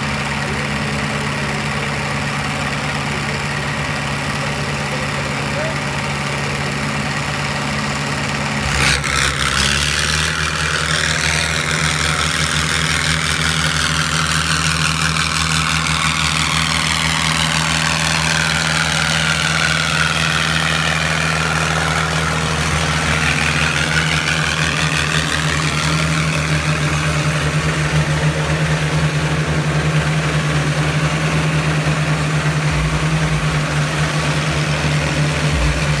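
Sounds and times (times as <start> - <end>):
tractor diesel engines running hard: 0.0 - 36.0.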